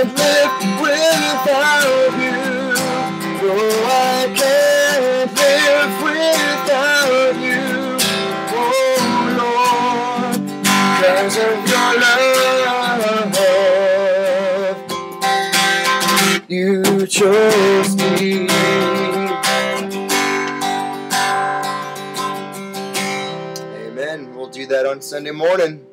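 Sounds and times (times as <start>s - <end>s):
acoustic guitar strumming: 0.0s - 25.9s
man singing held notes: 23.7s - 25.6s.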